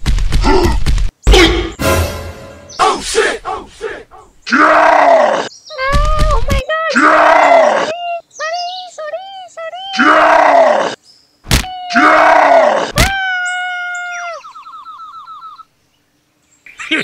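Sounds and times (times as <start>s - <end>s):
sharp cartoon whack: 0.0s - 2.6s, 11.5s - 11.7s, 13.0s - 13.2s
loud yells: 4.5s - 5.5s, 6.9s - 7.9s, 10.0s - 11.0s, 11.8s - 14.4s.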